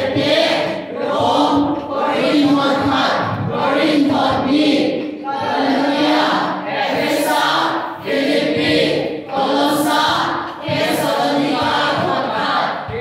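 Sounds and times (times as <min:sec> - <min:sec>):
group of voices singing: 0:00.0 - 0:13.0.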